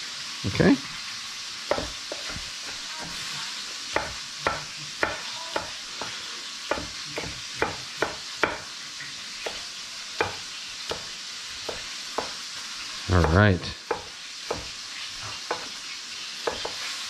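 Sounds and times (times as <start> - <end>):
chicken sizzling in a pan: 0.0 - 17.0
knife tapping on cutting board: 1.7 - 3.2, 4.0 - 8.7, 10.2 - 12.4, 13.2 - 14.7, 15.4 - 15.8, 16.4 - 16.8.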